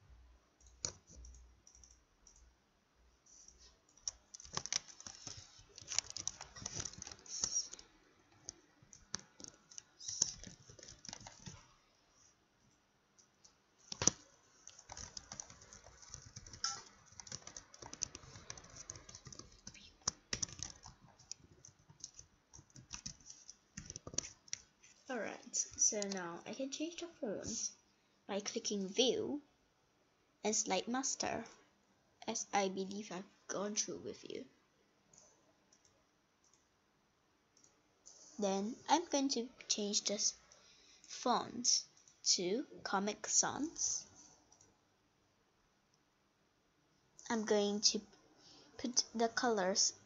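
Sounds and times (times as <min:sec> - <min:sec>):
typing on keyboard: 0:00.6 - 0:02.5, 0:03.9 - 0:07.8, 0:08.4 - 0:11.6, 0:13.4 - 0:24.7.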